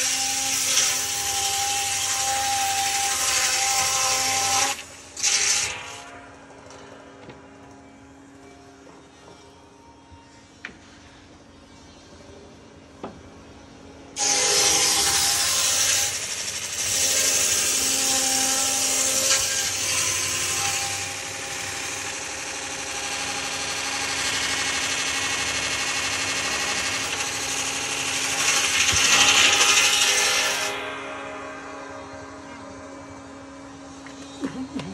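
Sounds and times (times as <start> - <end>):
saw cutting through log: 0.0 - 6.1, 14.2 - 30.9.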